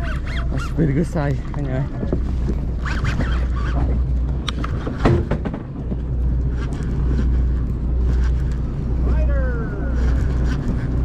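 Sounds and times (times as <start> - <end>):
boat engine droning: 0.0 - 11.0
sharp knocks: 4.8 - 5.8.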